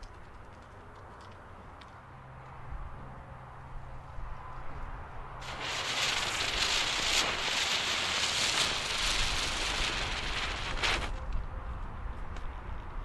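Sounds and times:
spinner firework hissing: 5.4 - 11.2.

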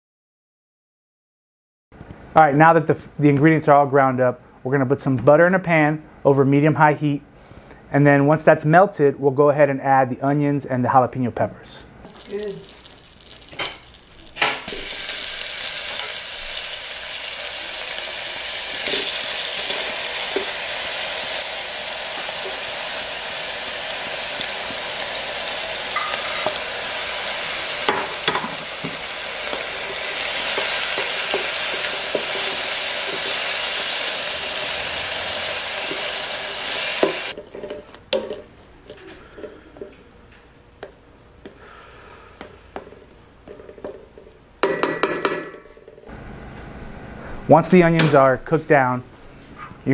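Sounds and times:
onions sizzling in hot pan: 12.0 - 37.4
spatula clicking and scraping: 28.8 - 34.6.

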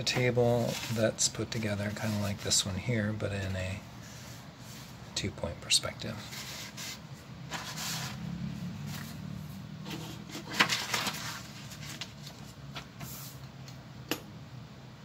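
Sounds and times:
low steady hum: 0.0 - 15.0
paper rustling: 0.2 - 2.7, 6.2 - 8.2, 9.8 - 13.4.

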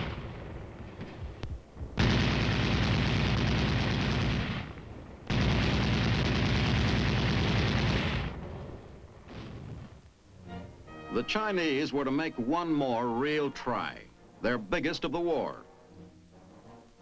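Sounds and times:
machine gun firing bursts: 2.0 - 8.4.

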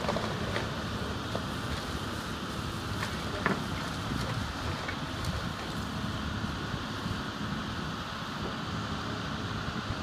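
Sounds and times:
excavator engine running: 0.0 - 10.0
wind buffeting microphone: 3.6 - 8.7.

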